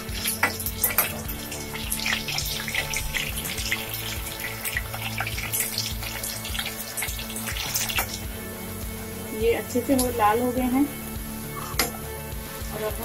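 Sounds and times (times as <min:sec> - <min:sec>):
spatula turning potatoes: 0:00.0 - 0:09.2
background music: 0:00.0 - 0:13.0
potatoes sizzling in hot oil: 0:00.0 - 0:13.0.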